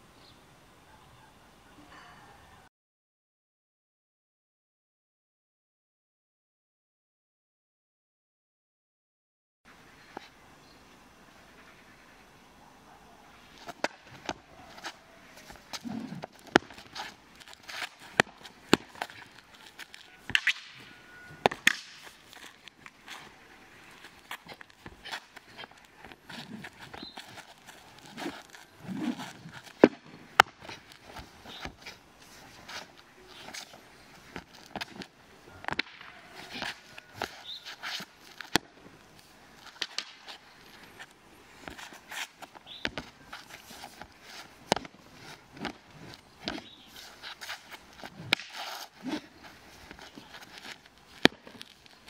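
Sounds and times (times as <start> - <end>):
staff swishing through air: 13.4 - 38.7, 41.6 - 51.8
sharp crack: 13.6 - 32.0, 32.6 - 38.8, 39.6 - 40.4, 41.6 - 52.0
feet scuffing on concrete: 13.6 - 35.1, 35.7 - 38.6, 39.2 - 52.0.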